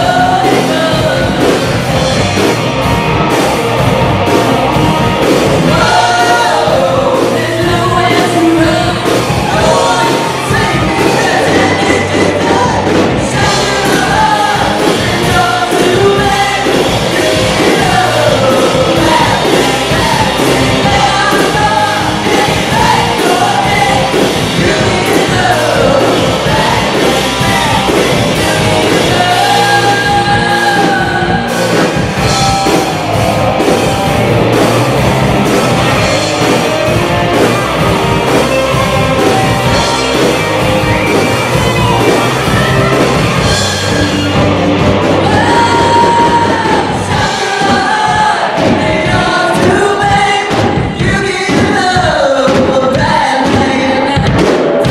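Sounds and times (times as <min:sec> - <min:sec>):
woman singing: 0:00.0 - 0:01.8, 0:05.7 - 0:31.5, 0:45.2 - 0:54.9
bass guitar: 0:00.0 - 0:54.9
drum kit: 0:00.0 - 0:54.9
electric guitars: 0:00.0 - 0:54.9.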